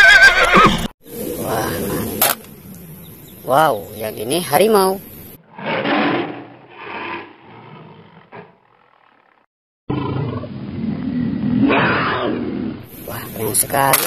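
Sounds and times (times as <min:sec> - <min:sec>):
tiger roaring: 0:05.4 - 0:12.9.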